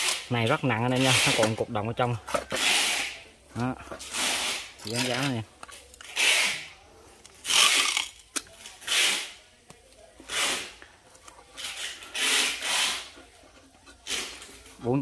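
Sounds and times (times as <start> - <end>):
masking tape ripping: 1.0 - 1.6, 2.5 - 3.2, 6.0 - 6.7, 7.4 - 9.4, 10.2 - 10.8, 11.6 - 13.2
pen scratching on tape: 11.6 - 13.2.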